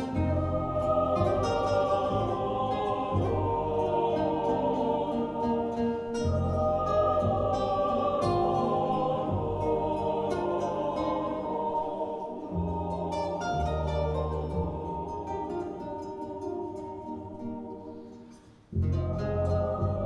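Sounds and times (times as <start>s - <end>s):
double bass low notes: 0.0s - 5.4s, 6.2s - 11.6s, 18.8s - 20.0s
acoustic guitar: 0.0s - 20.0s
choir singing sustained chords: 0.0s - 20.0s.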